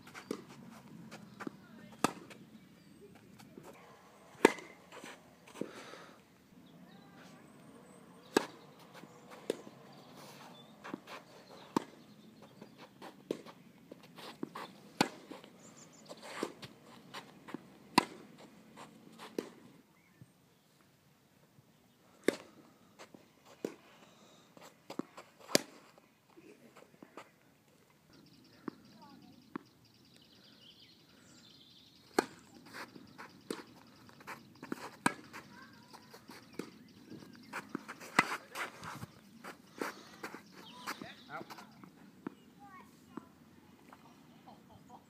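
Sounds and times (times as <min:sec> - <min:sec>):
rackets hitting tennis ball: 0:00.2 - 0:05.8, 0:07.5 - 0:15.6, 0:16.3 - 0:19.7, 0:24.9 - 0:25.9, 0:32.1 - 0:42.4.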